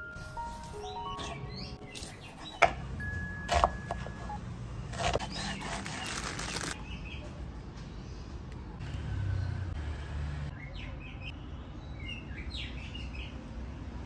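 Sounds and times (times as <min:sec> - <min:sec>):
knife chopping on wooden board: 0:03.5 - 0:04.2, 0:04.9 - 0:06.1
plastic bag rustling: 0:05.8 - 0:06.8.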